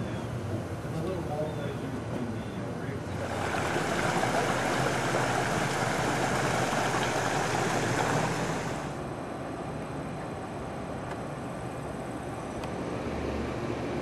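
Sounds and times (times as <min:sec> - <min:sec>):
steady rushing noise: 0:03.0 - 0:10.1.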